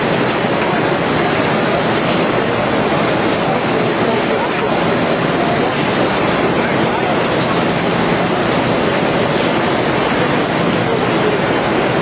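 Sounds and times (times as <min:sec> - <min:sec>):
binding machine running: 0:00.0 - 0:12.0.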